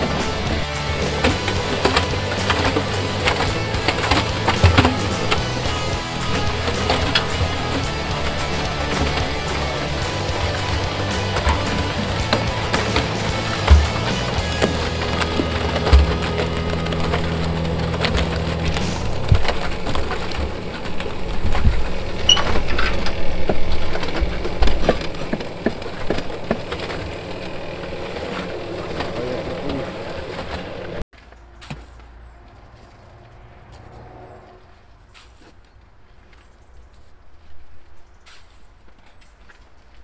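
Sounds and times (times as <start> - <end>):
trowel scraping mortar: 0.0 - 22.6
wet mortar spilling into wheelbarrow: 0.0 - 22.7
concrete mixer drum turning: 0.0 - 31.0.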